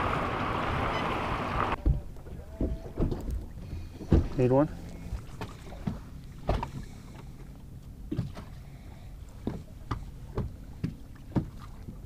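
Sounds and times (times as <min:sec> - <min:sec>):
wind and water around hull: 0:00.0 - 0:12.0
light knocks on boat: 0:02.6 - 0:04.5, 0:05.4 - 0:07.2, 0:08.1 - 0:08.5, 0:09.4 - 0:12.0.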